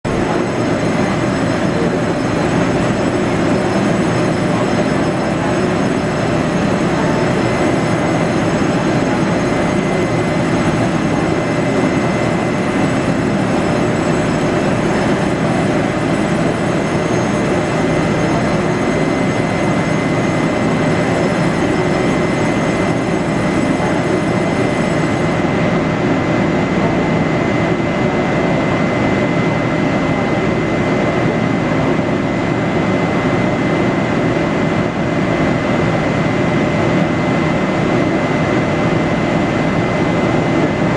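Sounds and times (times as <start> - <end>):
electric locomotive blowers humming: 0.1 - 25.4
faint high whine: 0.1 - 25.8.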